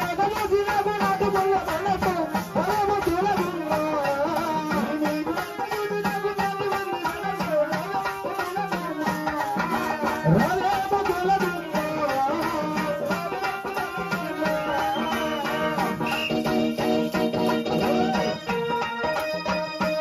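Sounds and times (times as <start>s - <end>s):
fast tabla-like drum beat: 0.0s - 20.0s
electronic keyboard melody: 13.0s - 20.0s.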